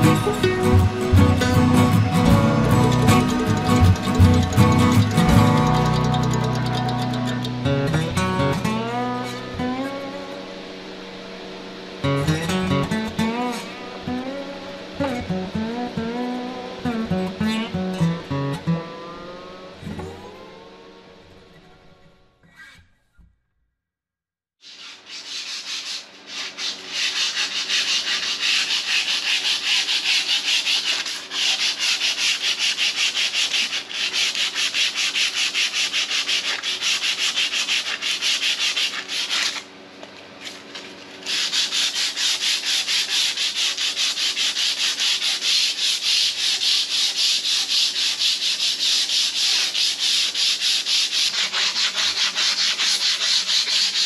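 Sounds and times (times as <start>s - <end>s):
sanding disc scrubbing iron: 0.0s - 7.7s, 24.6s - 39.7s, 40.4s - 54.0s.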